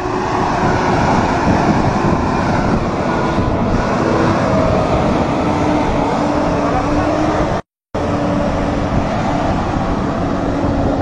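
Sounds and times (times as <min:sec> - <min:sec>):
diesel truck engine droning: 0:00.0 - 0:11.0
road and tyre noise: 0:00.0 - 0:11.0.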